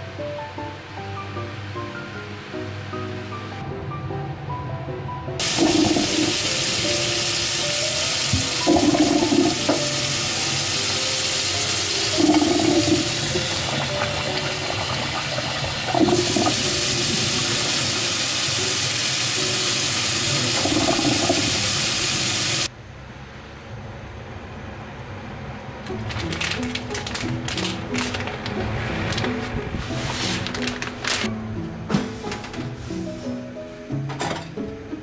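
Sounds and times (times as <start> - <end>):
tap running into steel sink: 8.3 - 10.0.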